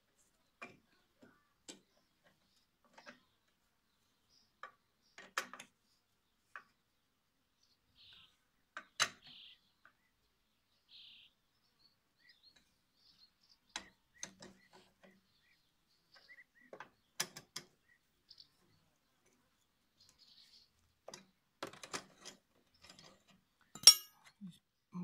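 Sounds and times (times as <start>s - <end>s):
hand tool clicking on metal: 23.8s - 24.3s.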